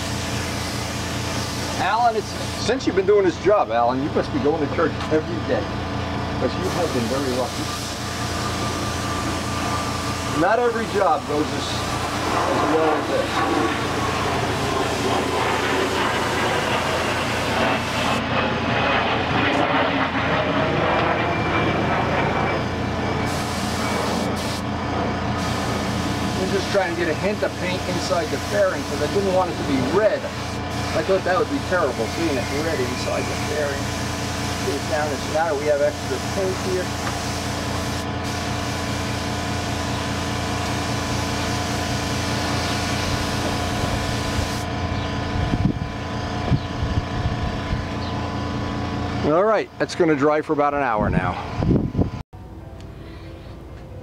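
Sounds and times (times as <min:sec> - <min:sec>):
paint spray gun hissing: 0:00.0 - 0:02.8, 0:06.6 - 0:13.2, 0:16.2 - 0:18.2, 0:23.3 - 0:24.6, 0:25.4 - 0:44.6
air compressor humming: 0:00.0 - 0:18.3, 0:22.1 - 0:49.8
machine droning: 0:00.0 - 0:54.0.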